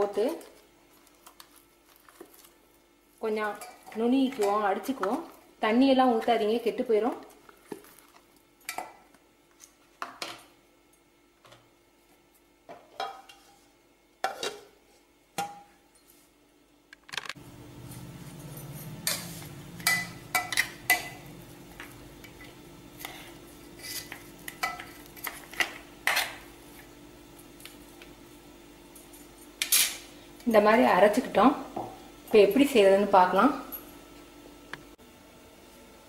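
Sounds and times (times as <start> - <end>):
steel kitchenware clinking: 18.2 - 21.3.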